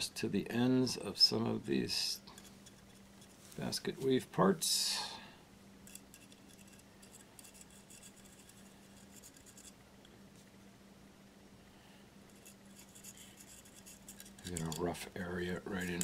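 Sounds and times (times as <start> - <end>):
faint steady hum: 0.0 - 16.0
faint ticks and scratches: 1.4 - 4.2, 5.8 - 10.5, 12.3 - 16.0.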